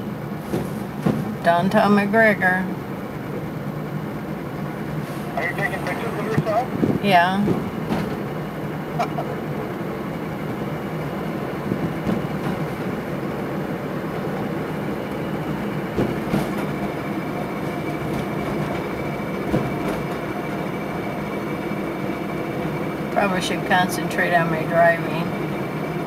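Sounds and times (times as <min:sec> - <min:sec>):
thin steady whine: 0:00.0 - 0:26.0
car cabin rumble and rattle: 0:00.2 - 0:02.8, 0:05.3 - 0:25.6
knocks and clunks: 0:00.5 - 0:01.8, 0:05.5 - 0:08.4, 0:11.6 - 0:14.5, 0:15.6 - 0:20.7.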